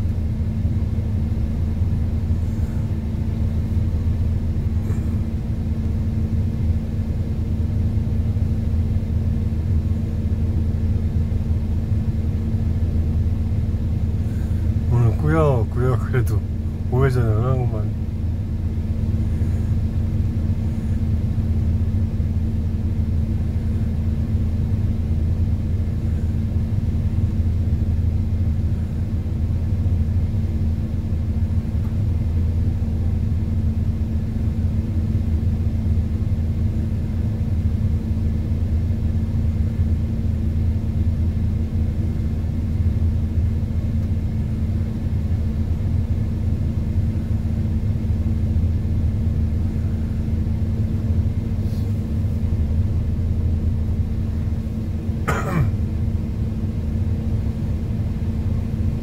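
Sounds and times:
diesel truck engine running: 0.0 - 59.0
person coughing: 55.3 - 55.8.

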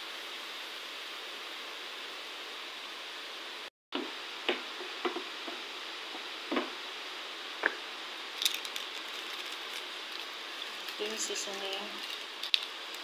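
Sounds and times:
chicken sizzling in a frying pan: 8.3 - 13.0.

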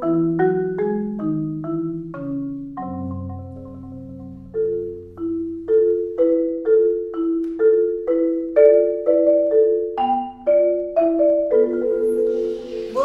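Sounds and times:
marimba melody: 0.0 - 13.0.

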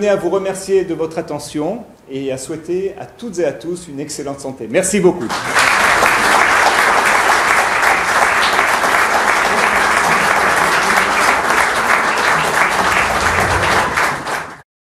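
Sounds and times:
audience applauding: 5.2 - 14.6.

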